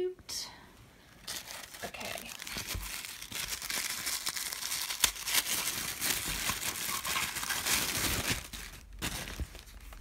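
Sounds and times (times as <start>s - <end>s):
tissue paper crinkling: 1.1s - 10.0s.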